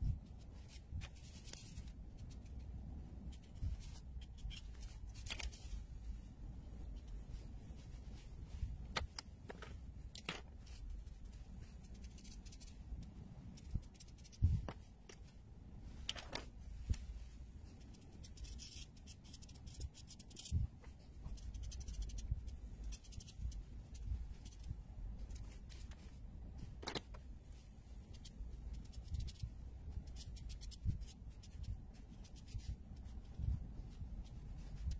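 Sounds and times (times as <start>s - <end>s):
marker scratching on paper: 0.2s - 5.8s, 10.6s - 12.8s, 13.6s - 14.9s, 17.8s - 26.2s, 28.0s - 34.9s.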